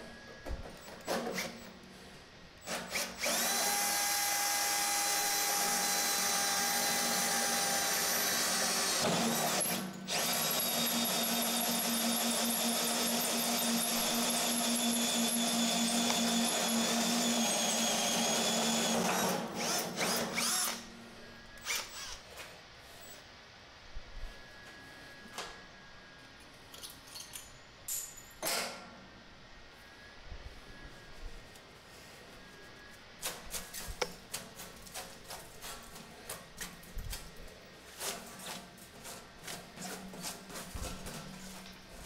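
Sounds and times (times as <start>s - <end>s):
power drill hole saw cutting metal: 2.6s - 20.9s, 21.6s - 22.2s.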